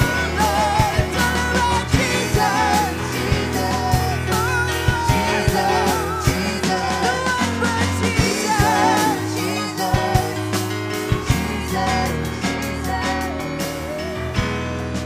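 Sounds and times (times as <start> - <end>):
drum hits: 0.0 - 11.7
singers' vocal runs: 0.0 - 14.3
live band playing: 0.0 - 15.0.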